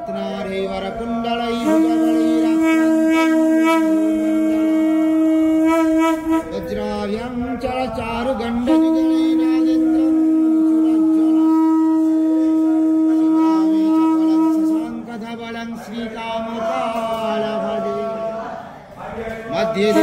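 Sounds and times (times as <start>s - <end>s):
conch shell blown: 1.4s - 7.4s, 8.6s - 15.3s, 19.8s - 20.0s.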